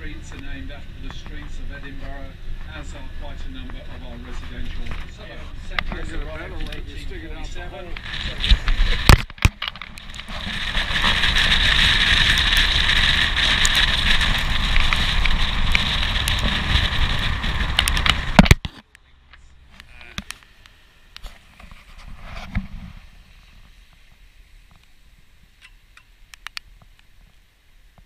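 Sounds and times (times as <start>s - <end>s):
wind rushing over camera: 0.0s - 18.8s, 19.7s - 25.6s
small ticks: 25.6s - 28.0s.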